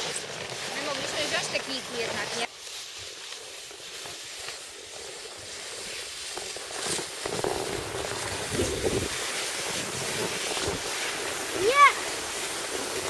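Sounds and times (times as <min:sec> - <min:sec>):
skis scraping over snow: 0:00.0 - 0:13.0
wind rushing on microphone: 0:07.3 - 0:13.0.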